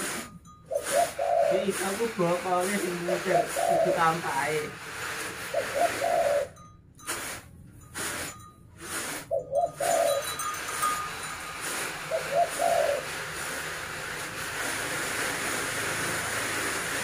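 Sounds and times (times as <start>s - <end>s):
dove cooing: 0.7s - 2.2s, 2.8s - 4.3s, 5.5s - 6.6s, 9.3s - 10.5s, 11.9s - 13.5s.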